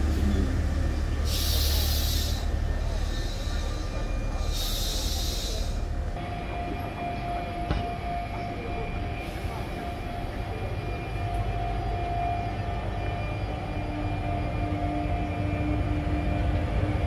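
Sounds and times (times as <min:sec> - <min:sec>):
train rumble: 0:00.0 - 0:17.0
hiss: 0:01.2 - 0:05.7.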